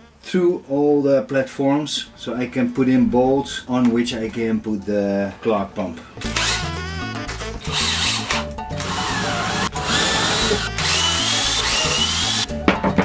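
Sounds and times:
background music: 3.5 - 13.0
cordless drill boring wood: 6.2 - 6.8, 7.6 - 12.5.

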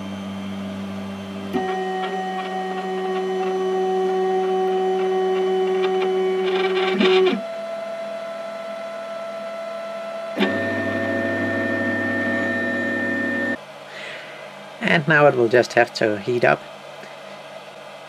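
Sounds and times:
mix of motor tones: 0.0 - 8.7, 10.2 - 13.6
stepper motor whine: 0.0 - 13.6
printer click: 1.6 - 7.4, 10.4 - 13.6.

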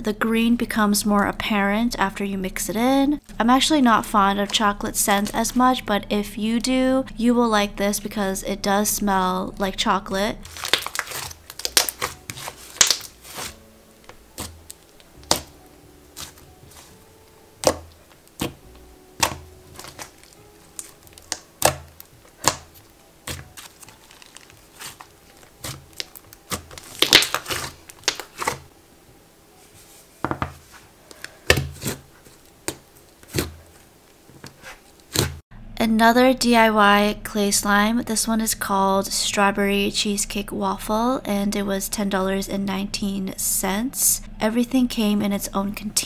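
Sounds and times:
soft background music: 0.0 - 46.0
slime squished by hand: 10.4 - 13.6, 14.4 - 17.0, 19.2 - 28.6
slime clicks and pops: 12.8 - 13.1, 27.0 - 28.3.

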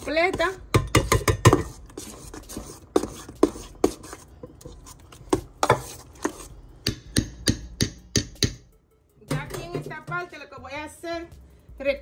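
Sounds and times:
utensil knocking against mixing dish: 0.0 - 4.7, 5.3 - 8.7.

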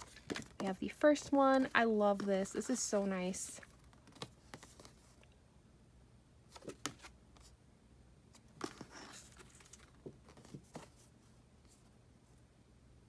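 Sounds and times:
photo cards rustling and tapping: 0.0 - 5.2, 8.4 - 11.1.

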